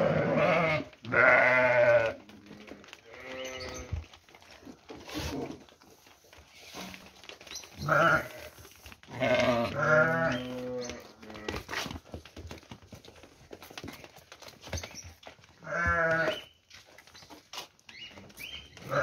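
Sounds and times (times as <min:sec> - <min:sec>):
sheep bleating: 0:00.0 - 0:04.0, 0:07.8 - 0:11.6, 0:15.6 - 0:16.5.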